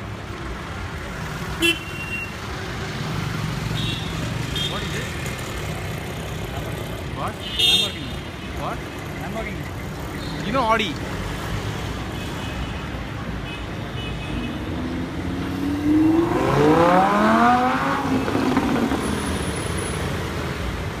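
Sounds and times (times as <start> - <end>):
street traffic rumbling: 0.0 - 21.0
sports car engine accelerating: 14.8 - 19.4.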